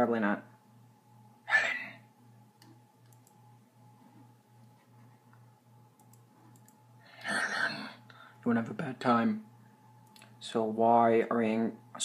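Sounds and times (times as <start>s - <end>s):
faint clicks: 2.6s - 3.4s, 6.0s - 6.8s.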